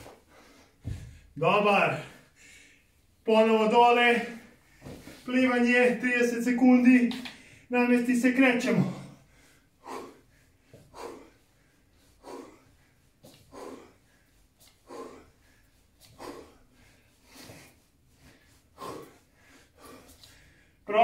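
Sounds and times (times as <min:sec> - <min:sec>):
man breathing hard: 0:00.1 - 0:01.4, 0:02.1 - 0:03.0, 0:07.3 - 0:07.7, 0:09.0 - 0:20.9.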